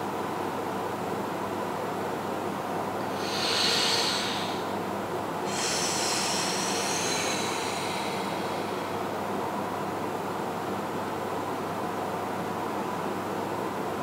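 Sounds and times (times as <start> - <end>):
background hiss: 3.0 - 9.7
person breathing slowly: 3.1 - 4.8, 5.4 - 9.4.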